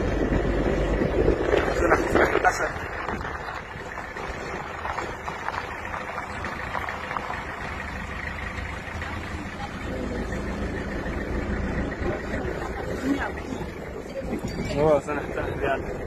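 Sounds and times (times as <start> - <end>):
vehicle engine and road noise: 0.0 - 16.0.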